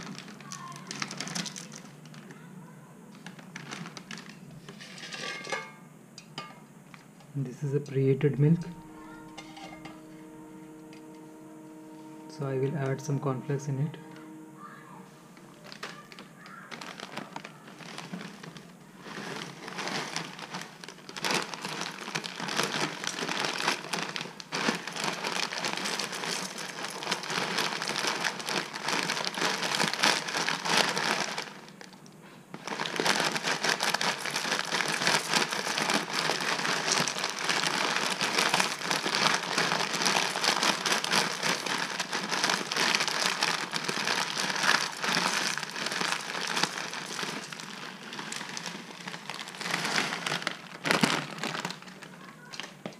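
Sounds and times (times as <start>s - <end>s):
flakes pouring into bowl: 0.0s - 2.3s, 15.6s - 32.0s, 32.6s - 52.7s
foil bag crinkling: 0.0s - 5.7s, 6.9s - 11.6s, 15.3s - 52.9s.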